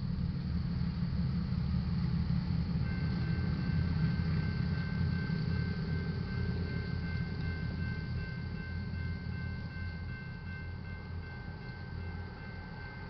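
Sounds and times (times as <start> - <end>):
railroad crossing bell ringing: 2.7 - 13.0.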